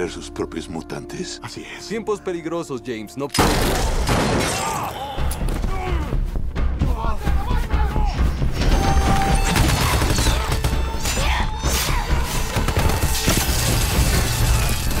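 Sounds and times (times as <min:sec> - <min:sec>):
film score music: 0:00.0 - 0:15.0
impacts crashes and splintering: 0:12.5 - 0:15.0.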